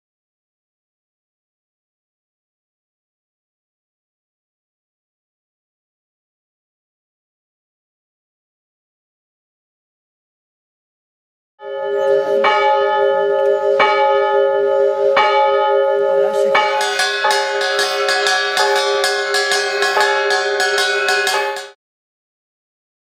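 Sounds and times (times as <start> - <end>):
large temple bell ringing: 11.6 - 21.8.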